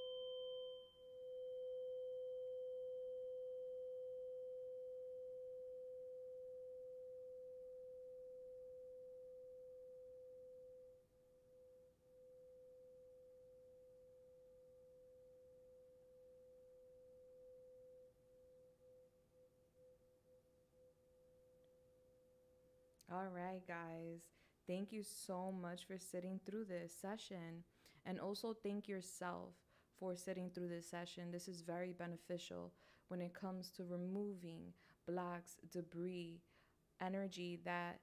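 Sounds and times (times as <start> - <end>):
tuning fork ringing: 0.0 - 22.9.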